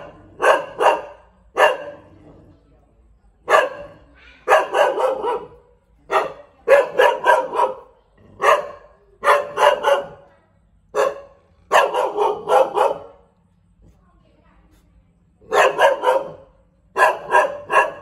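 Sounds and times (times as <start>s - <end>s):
dog barking: 0.0s - 2.1s, 3.4s - 10.3s, 10.9s - 13.3s, 15.4s - 18.0s.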